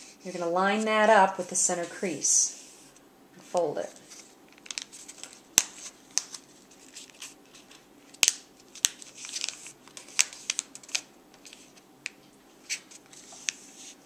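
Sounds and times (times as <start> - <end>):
paper rustling and crinkling: 3.8 - 11.8, 12.6 - 14.0.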